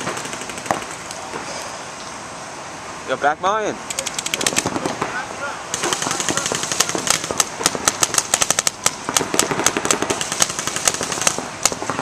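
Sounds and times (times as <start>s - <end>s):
paintball markers firing: 3.9s - 5.1s, 5.8s - 12.0s.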